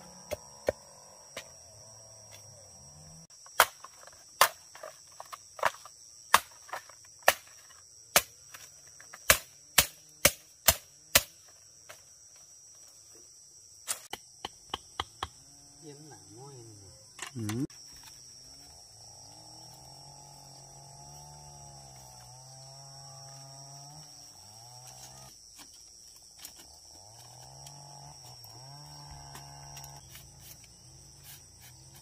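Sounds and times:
insect buzz: 0.0s - 32.0s
machete chopping bamboo: 3.5s - 5.0s, 5.6s - 11.4s, 13.9s - 15.4s.

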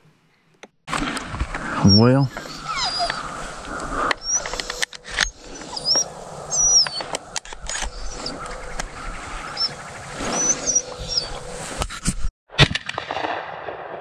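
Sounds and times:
dog whining in squeals: 1.8s - 8.8s, 9.4s - 11.5s.

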